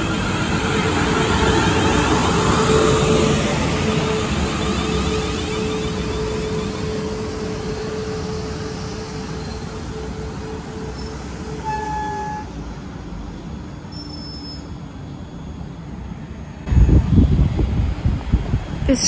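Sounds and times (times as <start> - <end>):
electric train rumbling and humming: 0.0 - 19.0
train brake squeal: 3.8 - 12.6, 13.9 - 14.8.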